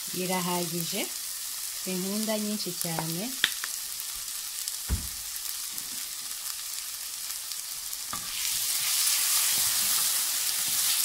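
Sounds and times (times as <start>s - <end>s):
vegetables sizzling in oil: 0.0s - 11.0s
dull knock: 4.9s - 5.2s
spatula stirring vegetables: 5.5s - 11.0s.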